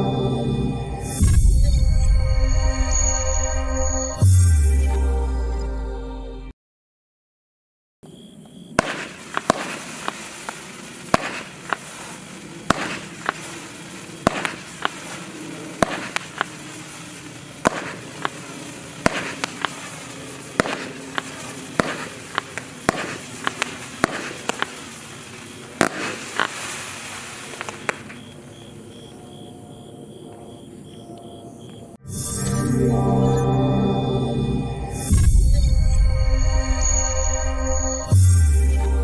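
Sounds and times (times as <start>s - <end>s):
firework bangs: 8.6s - 28.3s
firework whooshing hiss: 8.8s - 28.1s.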